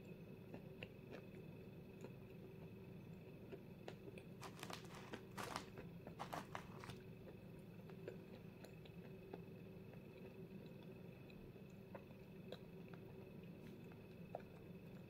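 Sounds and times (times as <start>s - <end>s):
chalk crunching when bitten: 4.4s - 7.0s.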